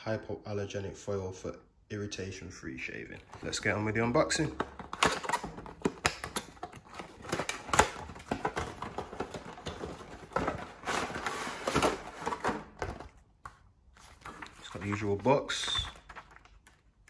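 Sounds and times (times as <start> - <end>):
packaging rustling and scraping: 4.4 - 13.2, 13.9 - 16.8.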